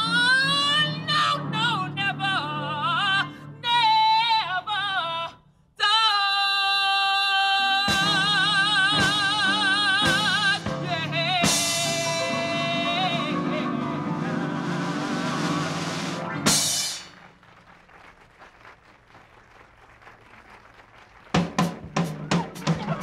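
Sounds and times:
person singing with vibrato: 0:00.0 - 0:15.9
live band accompaniment: 0:07.8 - 0:18.2, 0:21.2 - 0:23.0
drum strokes: 0:07.9 - 0:17.4, 0:21.4 - 0:23.0.

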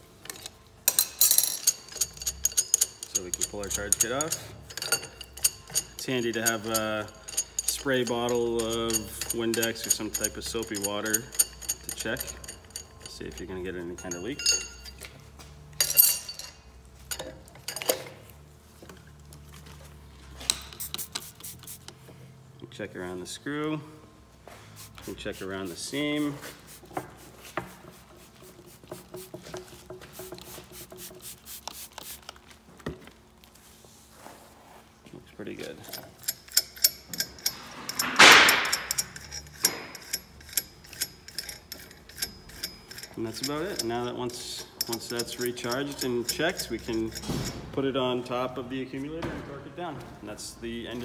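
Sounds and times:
metal parts clinking: 0:00.2 - 0:18.2, 0:35.6 - 0:47.7.

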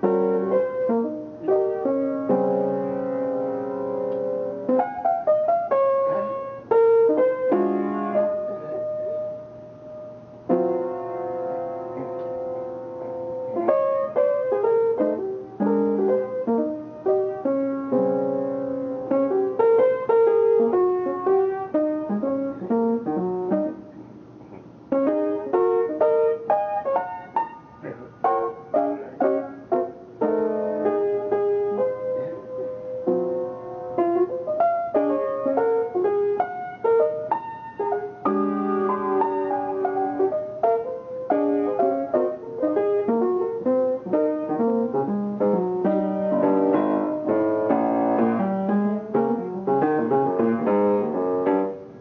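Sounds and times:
jazz piano playing: 0:00.0 - 0:52.0.

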